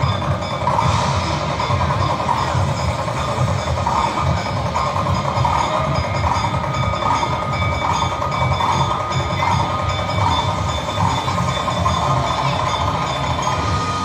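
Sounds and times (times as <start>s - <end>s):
loud distorted dance music: 0.0s - 14.0s.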